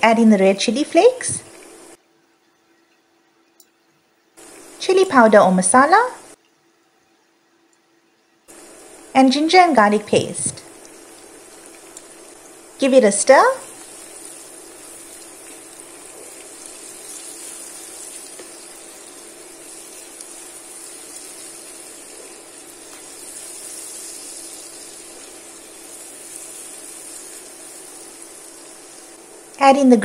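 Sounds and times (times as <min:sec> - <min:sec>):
onions sizzling in hot oil: 0:08.5 - 0:30.0
wooden spoon stirring: 0:13.6 - 0:29.0.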